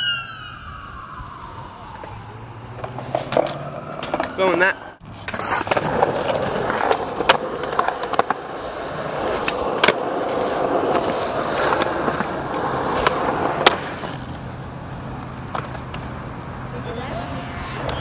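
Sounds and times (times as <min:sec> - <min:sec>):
skateboard wheels rolling on concrete: 0:00.0 - 0:18.0
skateboard clacks: 0:05.2 - 0:14.4, 0:15.2 - 0:16.2.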